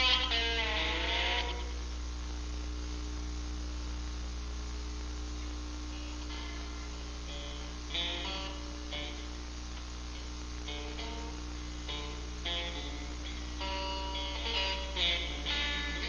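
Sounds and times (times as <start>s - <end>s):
guitar notes plucked: 0.0s - 1.8s, 5.9s - 9.4s, 10.1s - 16.0s
low electrical hum and hiss: 0.0s - 16.0s.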